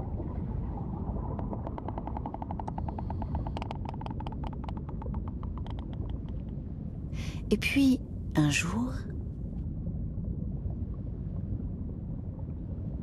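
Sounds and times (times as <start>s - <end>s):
low underwater rumble: 0.0s - 7.4s, 9.0s - 13.0s
sperm whale clicks underwater: 1.1s - 6.7s.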